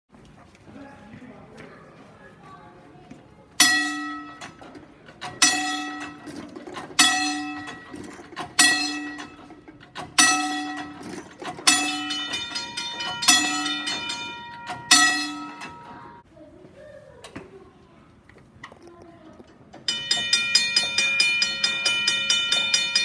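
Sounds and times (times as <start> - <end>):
level-crossing gong bell: 3.6 - 4.6, 5.3 - 6.3, 7.0 - 16.2, 19.9 - 23.0.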